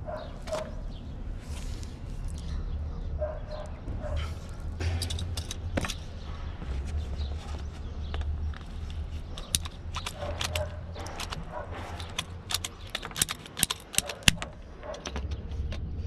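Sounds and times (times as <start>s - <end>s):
low steady rumble: 14.3s - 16.0s.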